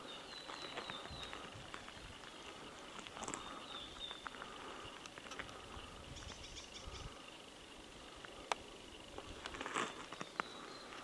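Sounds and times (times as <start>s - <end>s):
faint bird chirps: 0.0s - 5.0s, 5.6s - 7.7s, 9.9s - 11.0s.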